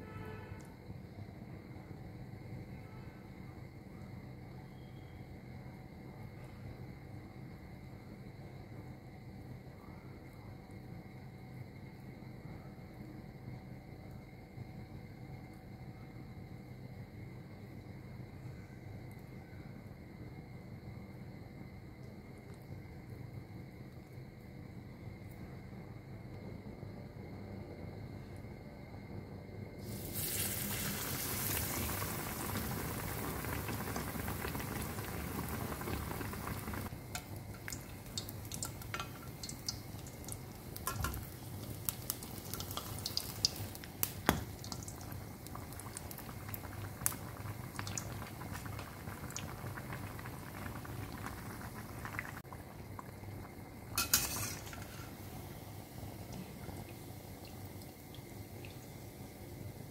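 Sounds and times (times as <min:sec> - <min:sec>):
bread deep-frying in hot oil: 0:29.8 - 0:59.9.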